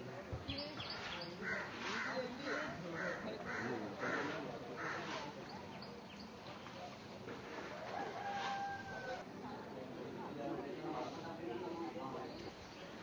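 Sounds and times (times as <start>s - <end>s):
murmur of voices: 0.0s - 13.0s
crows cawing: 1.4s - 5.2s.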